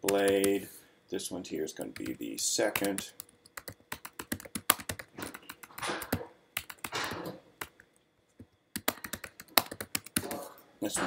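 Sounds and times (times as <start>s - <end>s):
typing on keyboard: 0.0s - 0.6s, 2.0s - 7.8s, 8.7s - 10.4s.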